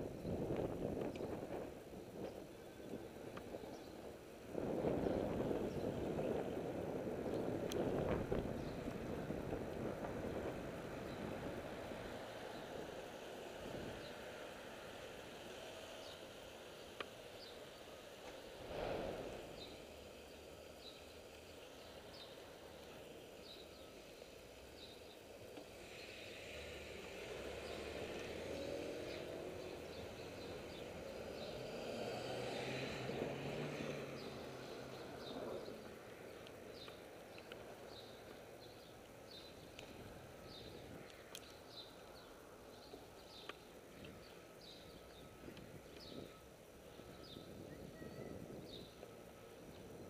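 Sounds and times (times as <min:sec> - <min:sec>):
quiet street traffic: 0:00.0 - 0:50.0
vehicle passing: 0:26.1 - 0:36.9.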